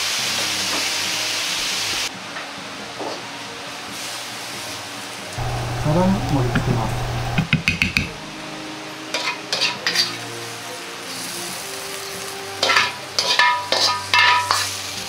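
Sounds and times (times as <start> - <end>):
metal ladle scraping in a wok: 12.6 - 14.8.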